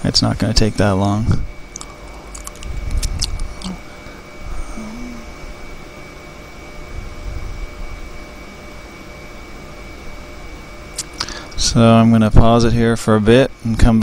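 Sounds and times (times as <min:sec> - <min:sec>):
background hiss and low hum: 0:00.0 - 0:14.0
high-pitched whine: 0:00.0 - 0:14.0
brief low hum: 0:00.8 - 0:05.8.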